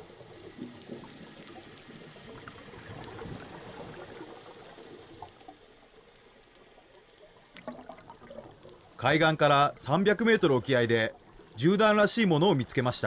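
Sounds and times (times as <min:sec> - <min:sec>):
faint clicks: 0:00.0 - 0:09.1
underwater bubbling and gurgling: 0:00.0 - 0:13.0.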